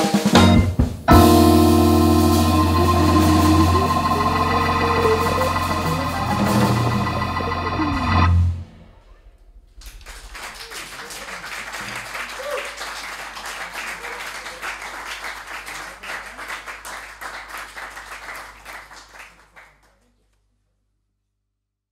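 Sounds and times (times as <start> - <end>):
small audience applauding: 9.8 - 20.3.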